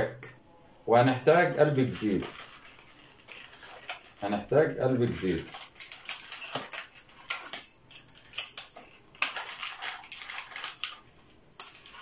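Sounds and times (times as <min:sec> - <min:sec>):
packaging rustling: 0:01.6 - 0:07.3, 0:07.9 - 0:12.0
small metal clinks: 0:05.5 - 0:10.9, 0:11.5 - 0:12.0.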